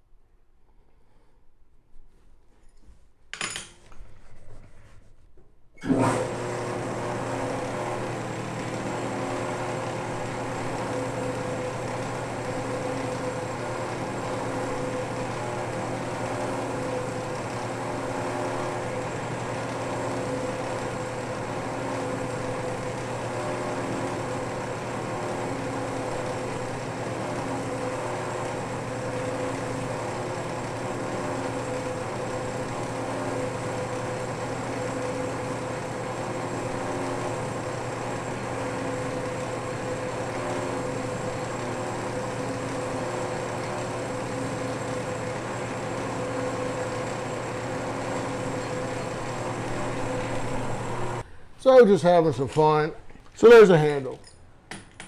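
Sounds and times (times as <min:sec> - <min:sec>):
metal lathe running: 0:05.8 - 0:51.2.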